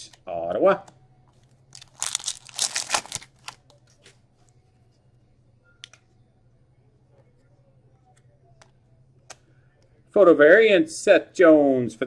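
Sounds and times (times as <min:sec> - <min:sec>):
foil wrapper crinkling and tearing: 0:01.7 - 0:03.7.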